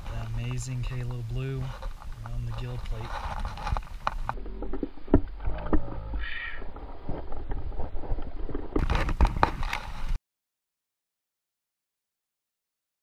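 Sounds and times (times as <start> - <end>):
low rumble: 0.0 - 10.2.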